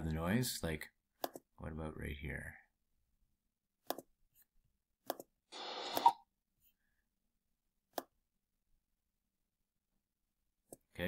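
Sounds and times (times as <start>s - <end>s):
computer mouse clicks: 1.2s - 1.5s, 3.8s - 4.1s, 5.0s - 6.2s.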